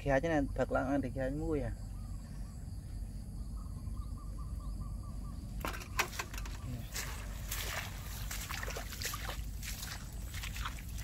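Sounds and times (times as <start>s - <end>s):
low steady rumble: 0.0s - 11.0s
mud squelching: 5.7s - 11.0s
footsteps through wet grass: 6.2s - 11.0s.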